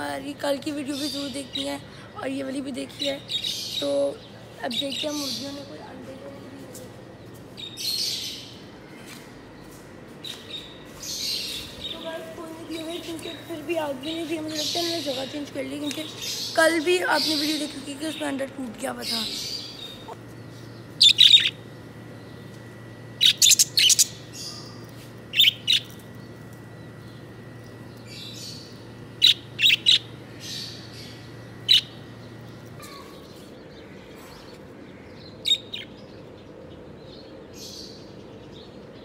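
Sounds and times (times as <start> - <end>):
budgerigars chirping: 21.0 - 21.6, 23.2 - 26.0, 28.0 - 32.4.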